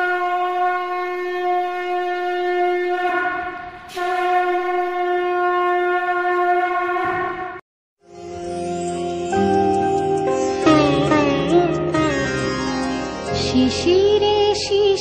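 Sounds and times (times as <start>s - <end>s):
conch shell blown: 0.0s - 7.6s.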